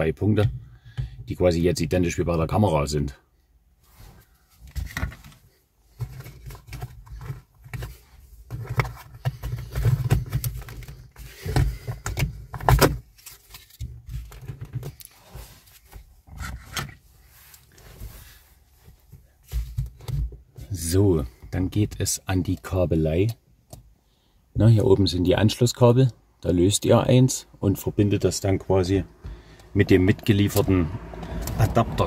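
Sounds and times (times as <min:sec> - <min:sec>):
handling noise on phone microphone: 0:03.8 - 0:22.8.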